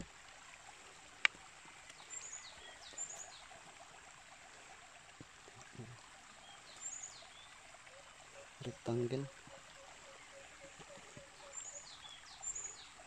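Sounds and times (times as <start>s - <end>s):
creek running water: 0.0s - 13.0s
bird chirps: 6.4s - 13.0s.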